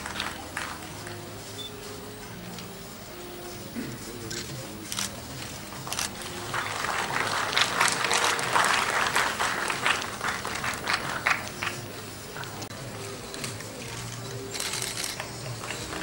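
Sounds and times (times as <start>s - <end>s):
audience applauding: 0.0s - 1.3s, 5.7s - 12.7s, 14.6s - 16.0s.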